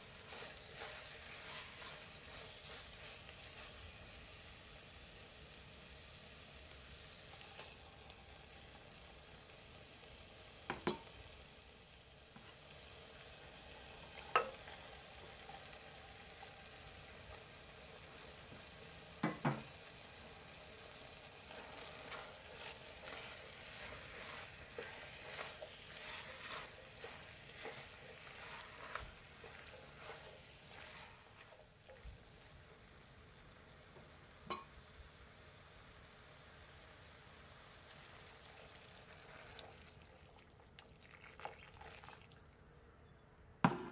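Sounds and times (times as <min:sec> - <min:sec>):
spoon scraping against pot: 0:00.0 - 0:03.3, 0:21.5 - 0:32.1
meat sauce sizzling faintly in a pot: 0:00.0 - 0:43.9.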